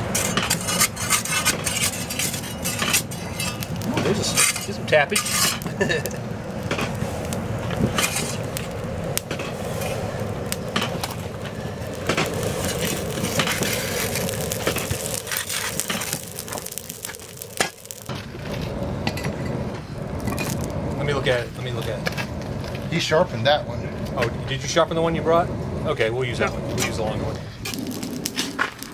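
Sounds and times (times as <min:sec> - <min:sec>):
metal bar scraping in furnace: 0:00.0 - 0:28.8
furnace fire rushing: 0:00.0 - 0:28.9.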